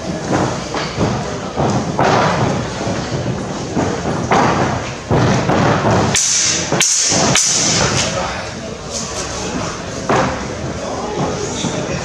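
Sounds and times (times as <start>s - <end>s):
footsteps stamping on wooden floor: 0.2s - 7.3s.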